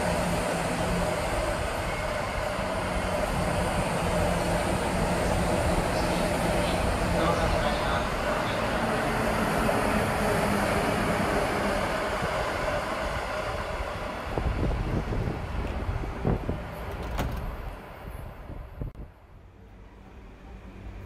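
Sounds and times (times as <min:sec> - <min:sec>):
train wheels rumbling on rails: 0:00.0 - 0:19.0.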